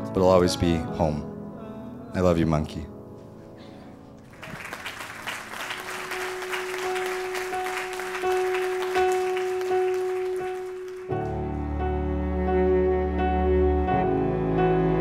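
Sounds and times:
crowd applauding: 4.2s - 11.5s.

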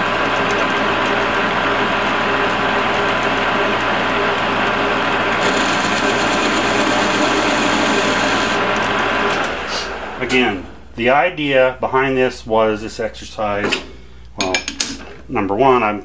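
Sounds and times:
lathe gear whine: 0.0s - 10.5s.

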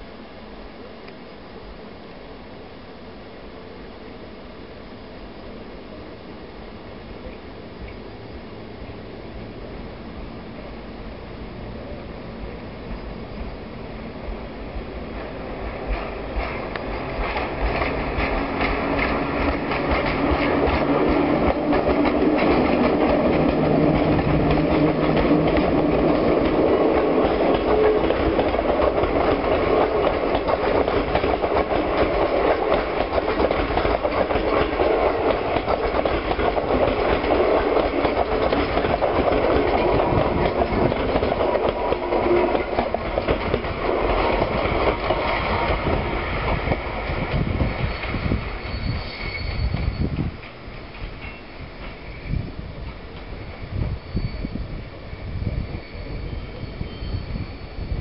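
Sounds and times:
electric locomotive humming: 0.0s - 58.0s
train wheels clacking over rails: 14.3s - 54.5s.

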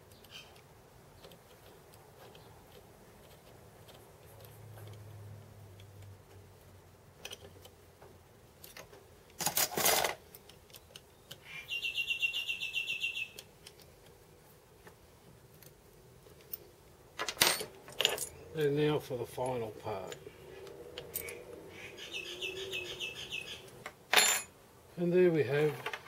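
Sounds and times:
bird chirping trill: 10.8s - 13.4s, 19.9s - 23.8s.

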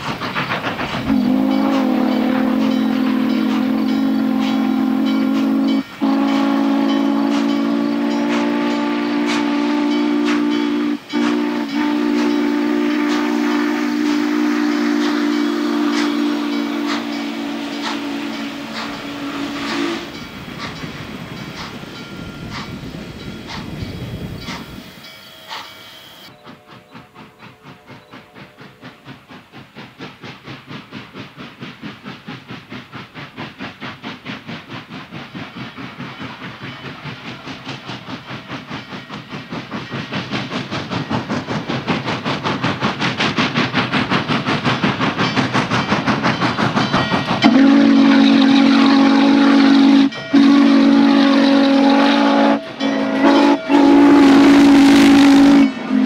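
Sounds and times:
steam locomotive exhaust chuffs: 0.0s - 56.0s
steam whistle: 1.0s - 20.2s, 47.4s - 56.0s.

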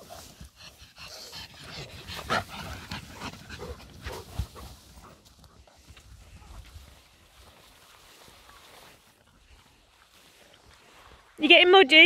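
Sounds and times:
footsteps on a path: 2.2s - 11.3s.

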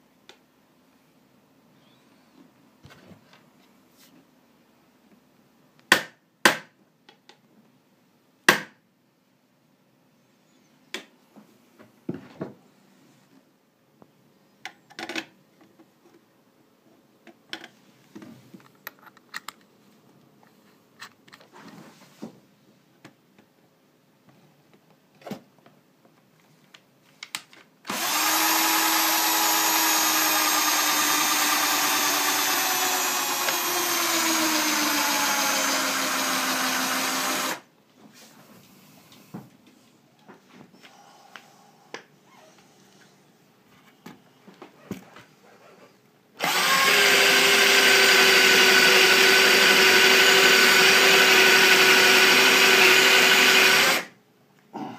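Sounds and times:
cordless drill boring into steel: 27.9s - 37.6s, 46.4s - 54.1s.

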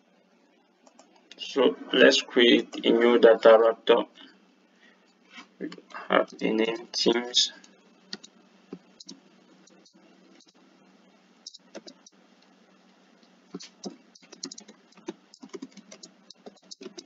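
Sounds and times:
keyboard typing: 0.8s - 1.2s, 8.1s - 10.6s, 11.4s - 12.2s, 13.5s - 17.0s.

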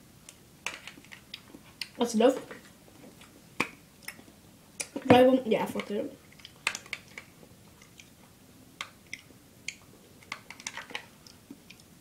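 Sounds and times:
eating sounds: 6.2s - 8.2s.

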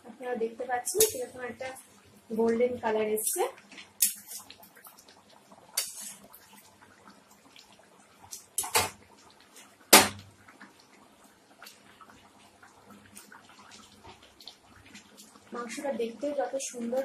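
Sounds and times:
utensil clicking and scraping in pan: 0.9s - 1.3s, 3.2s - 4.9s, 5.7s - 6.3s, 8.3s - 9.0s.

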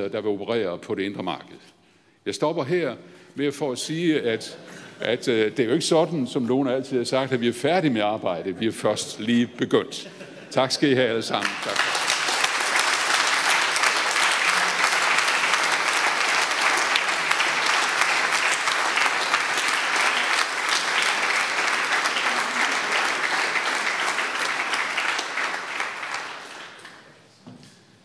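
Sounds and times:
audience applause: 11.4s - 27.2s.

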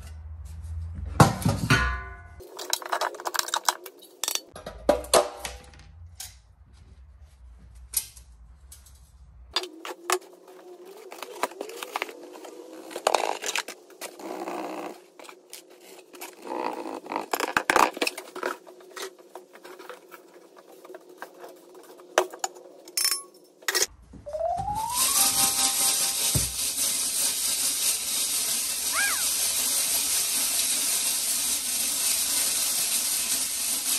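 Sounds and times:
hard objects clicking and scraping: 2.4s - 6.4s, 7.9s - 23.9s.

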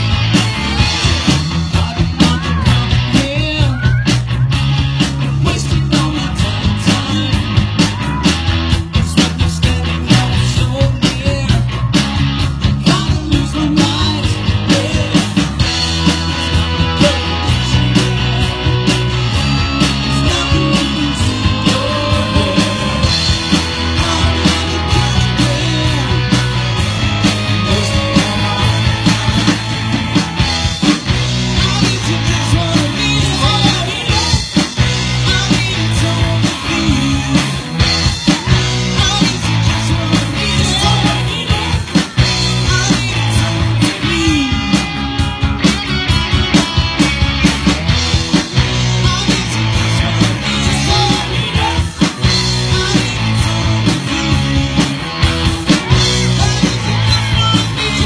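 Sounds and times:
bass line: 0.0s - 58.0s
drums: 0.0s - 58.0s
electric guitars: 0.0s - 58.0s
person singing: 1.7s - 4.3s, 5.2s - 8.4s, 16.1s - 30.2s, 30.8s - 45.0s, 48.6s - 55.0s, 55.6s - 58.0s.

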